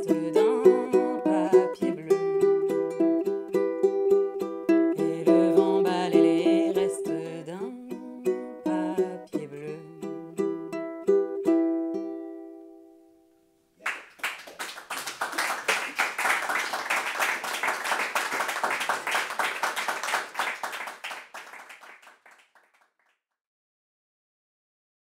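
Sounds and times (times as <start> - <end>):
ukulele plucked notes: 0.0 - 13.0
audience applauding: 13.8 - 22.9.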